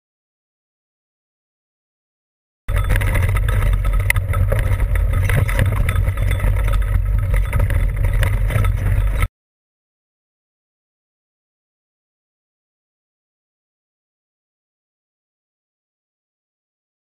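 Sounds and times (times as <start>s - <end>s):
mountain bike rattling over rocks: 2.7s - 9.3s
wind buffeting microphone: 2.7s - 9.3s.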